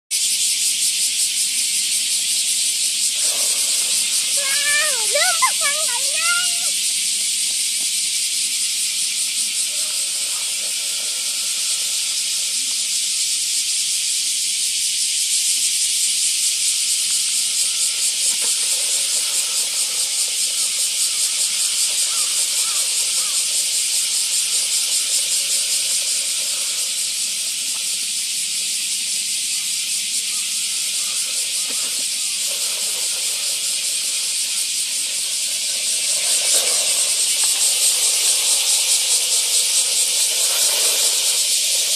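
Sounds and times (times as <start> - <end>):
robot vacuum cleaner running: 2.8 - 7.9, 8.8 - 13.2, 17.0 - 29.2, 30.0 - 41.9.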